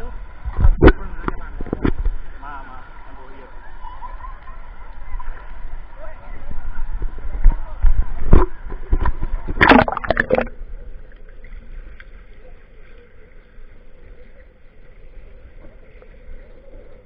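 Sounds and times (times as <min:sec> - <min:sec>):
muffled underwater sound: 0:00.0 - 0:17.0
water splashing: 0:08.2 - 0:13.2.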